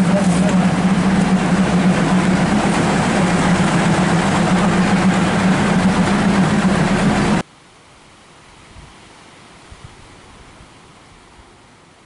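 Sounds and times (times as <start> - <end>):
diesel train engine idling: 0.0 - 7.4.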